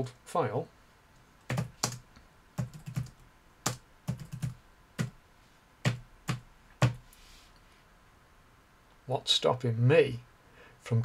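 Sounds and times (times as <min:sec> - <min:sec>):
computer keyboard keystrokes: 0:01.5 - 0:02.0, 0:02.6 - 0:05.1.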